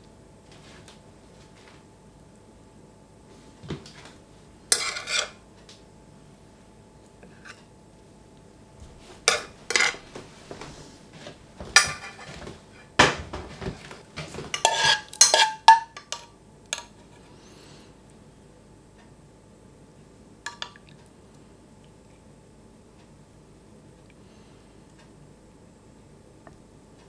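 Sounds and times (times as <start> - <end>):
spoon and cookware clinking: 4.7 - 5.4, 9.3 - 10.0, 11.8 - 12.3, 14.6 - 16.9.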